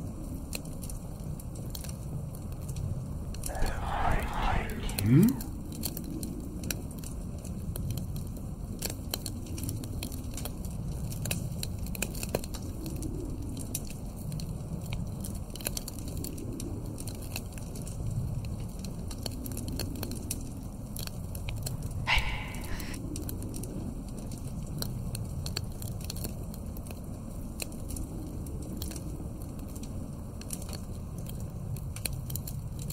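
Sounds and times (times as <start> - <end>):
wood fire crackling and popping: 26.8 - 32.8.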